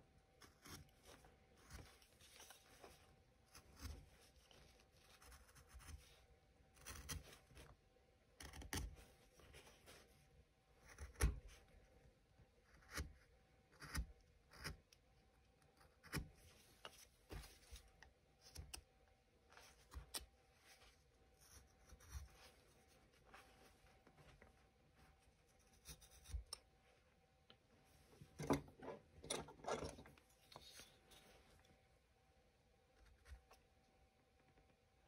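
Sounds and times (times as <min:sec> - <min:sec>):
carving tool cutting wood: 0:06.7 - 0:07.2, 0:10.8 - 0:11.4, 0:12.7 - 0:14.8.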